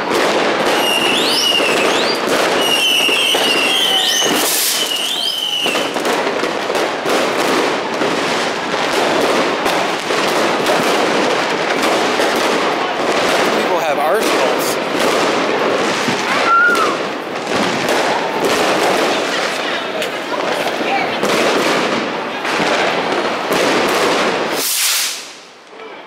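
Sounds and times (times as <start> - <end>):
fireworks crackling and banging: 0.0 - 26.0
whistling fireworks shrieking: 0.0 - 26.0
short loud hiss: 24.5 - 25.5.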